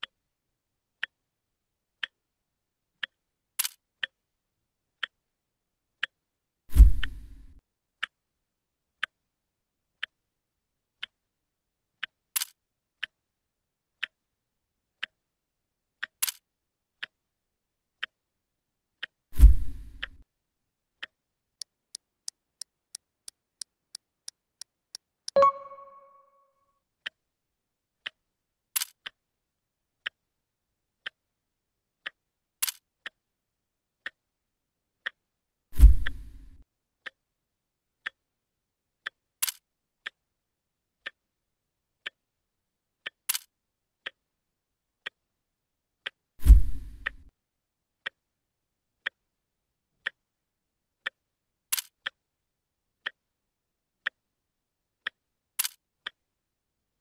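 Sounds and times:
clock ticking: 0:03.0 - 0:04.2, 0:25.3 - 0:26.2
two-note chime: 0:25.4 - 0:26.3.

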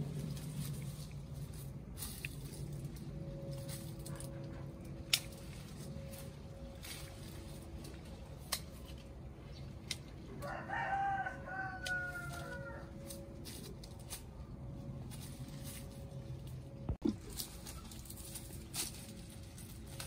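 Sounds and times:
rooster crowing: 0:10.3 - 0:13.2.

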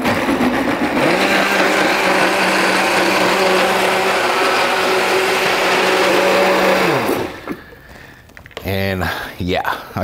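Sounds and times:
blender running: 0:00.0 - 0:07.6.

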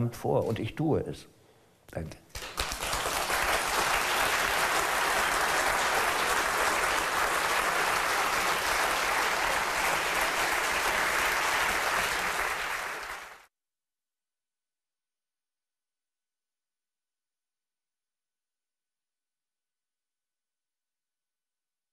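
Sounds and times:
audience applauding: 0:02.3 - 0:13.5.

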